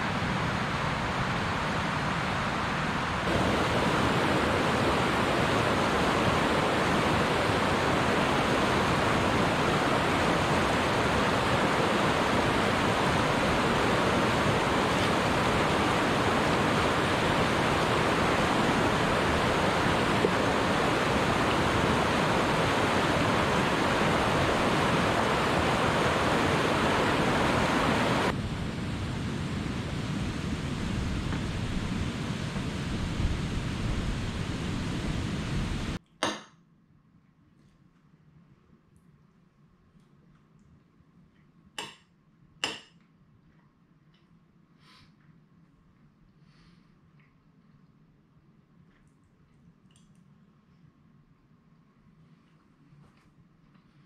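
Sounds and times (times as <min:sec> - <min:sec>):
stream rushing over rocks: 0:00.0 - 0:28.4.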